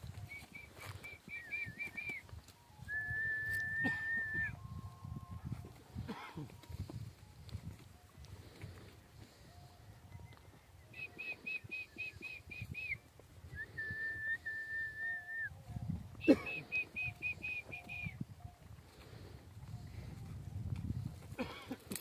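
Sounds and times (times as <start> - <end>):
high whistled calls: 0.2 - 4.6, 10.2 - 13.0, 16.2 - 18.2.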